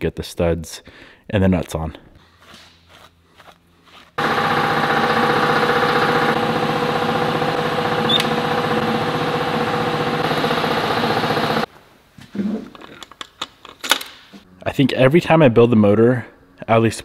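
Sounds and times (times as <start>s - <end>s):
small motor fluttering: 4.2s - 11.7s.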